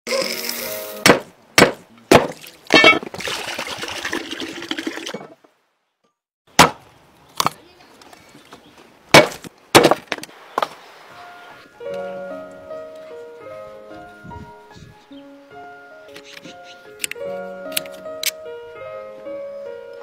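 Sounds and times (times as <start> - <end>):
wooden knocks and chopping: 1.0 - 3.0, 6.6 - 6.8, 9.1 - 10.7.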